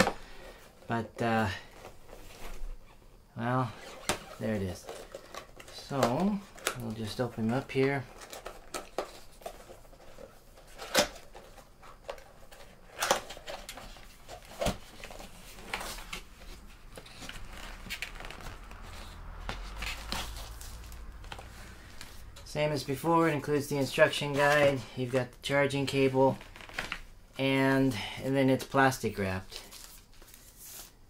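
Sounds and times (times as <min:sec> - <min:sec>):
cardboard flaps sliding and scraping: 0:08.1 - 0:24.8
soft rustling: 0:11.4 - 0:23.6.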